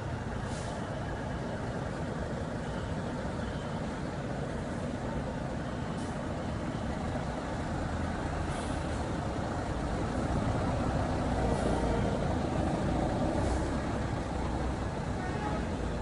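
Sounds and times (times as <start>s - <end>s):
coach engines rumbling: 0.0s - 16.0s
air brake hisses: 0.4s - 0.8s, 8.4s - 9.1s.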